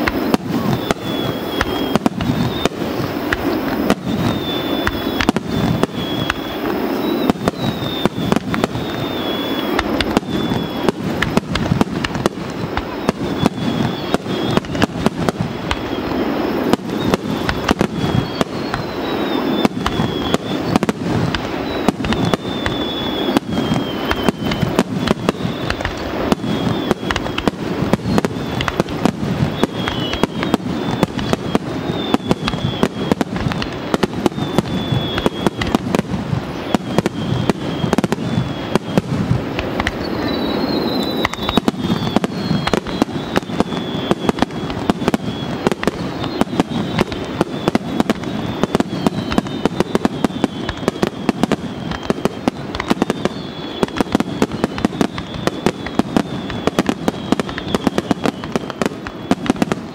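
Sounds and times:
fireworks bursting: 0:00.0 - 0:59.9
fireworks crackle: 0:00.0 - 0:59.9.

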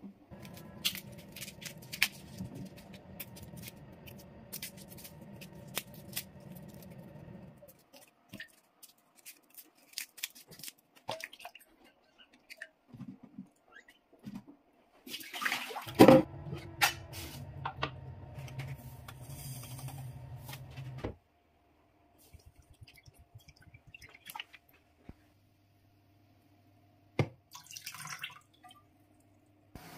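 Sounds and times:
water running: 0:00.3 - 0:07.6
garlic skin crackling: 0:00.4 - 0:07.0, 0:07.7 - 0:11.0.

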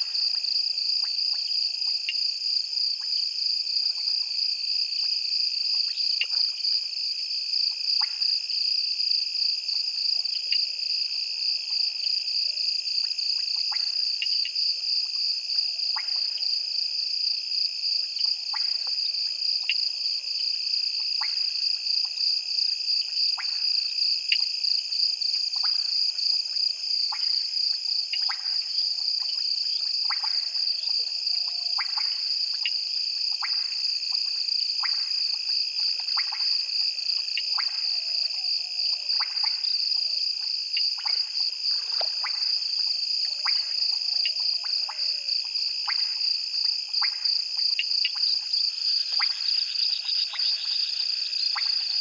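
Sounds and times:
frog clicks: 0:29.2 - 0:38.5, 0:39.1 - 0:52.0.

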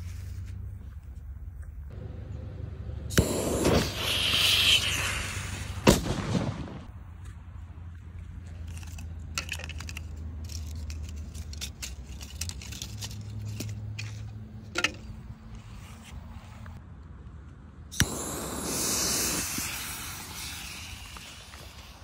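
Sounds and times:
low steady rumble: 0:00.0 - 0:03.6
phone pieces clicking and rattling: 0:08.5 - 0:15.2.

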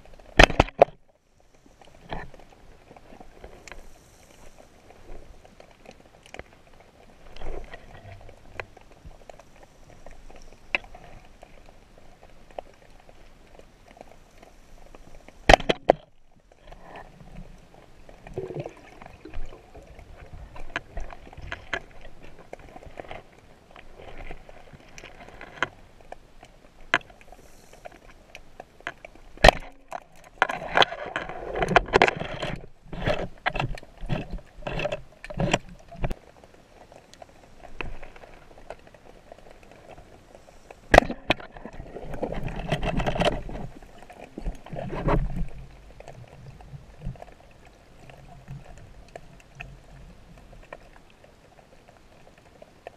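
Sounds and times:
underwater clicks and knocks: 0:00.1 - 0:01.1, 0:02.0 - 0:03.9, 0:07.2 - 0:09.4, 0:14.9 - 0:40.1, 0:40.9 - 0:51.4.

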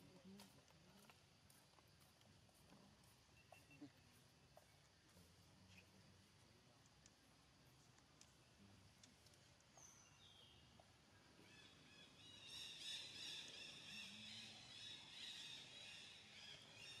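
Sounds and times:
birds twittering: 0:09.7 - 0:17.0.

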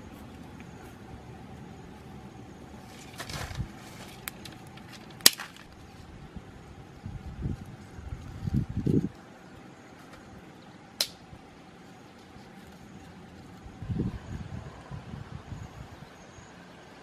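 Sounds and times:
wood fire burning: 0:00.0 - 0:13.8
sharp crack of fire: 0:02.8 - 0:05.9, 0:11.0 - 0:11.3.

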